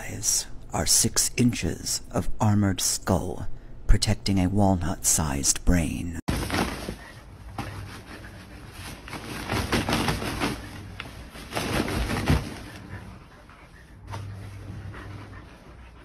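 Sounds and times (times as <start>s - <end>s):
dog shaking fabric dog bed: 6.3s - 13.1s.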